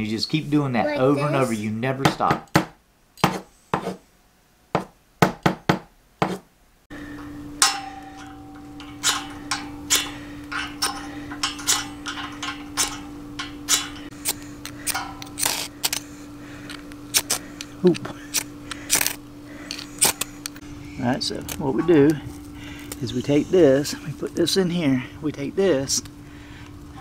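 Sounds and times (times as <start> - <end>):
steady hum: 6.7 - 27.0.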